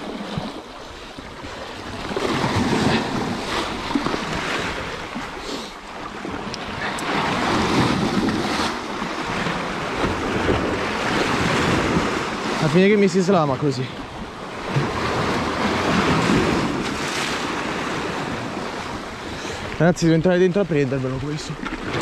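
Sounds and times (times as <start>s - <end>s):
sea waves breaking over rocks: 0.0s - 22.0s
wind buffeting microphone: 6.2s - 12.7s.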